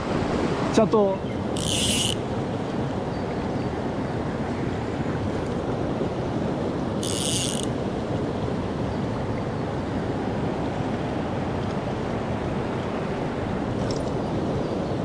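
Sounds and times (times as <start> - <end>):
stream rushing over rocks: 0.0 - 3.1
fishing reel ratchet clicking: 1.6 - 2.2, 7.0 - 7.7.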